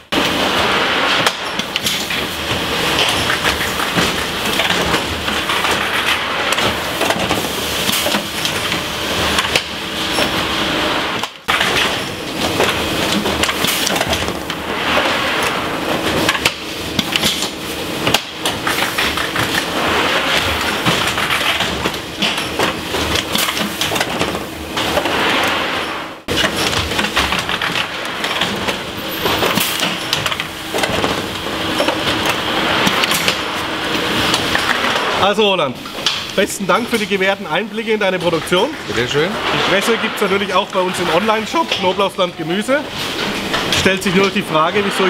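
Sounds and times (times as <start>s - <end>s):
packing machine clattering: 0.0s - 35.2s.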